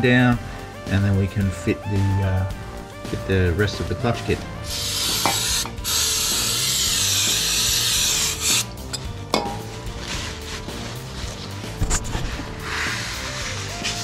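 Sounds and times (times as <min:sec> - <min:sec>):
aerosol can spraying: 0:04.6 - 0:08.8, 0:09.4 - 0:14.0
paper towel rubbing on metal: 0:09.6 - 0:14.0.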